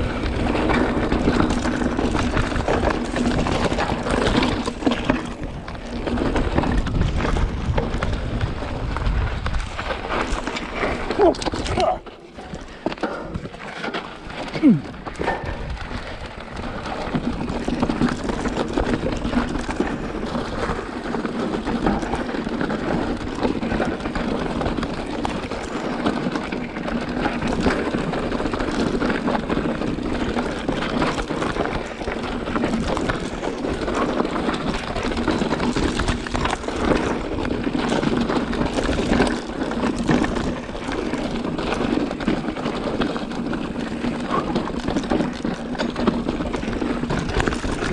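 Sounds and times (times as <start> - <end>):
bike rattling over rough ground: 0.0 - 47.9
bike tyres on dirt trail: 0.0 - 47.9.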